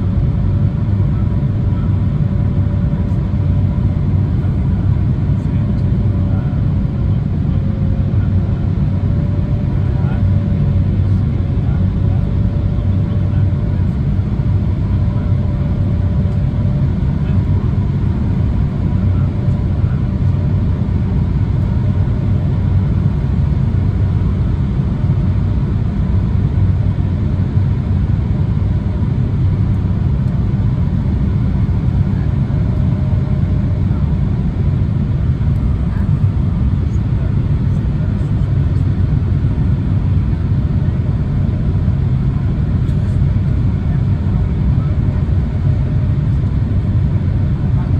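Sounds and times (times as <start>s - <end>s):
airliner cabin roar: 0.0s - 47.9s.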